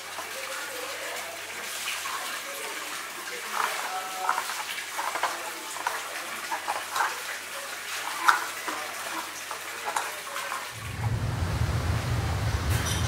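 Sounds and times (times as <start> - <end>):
low steady rumble: 10.8 - 13.0.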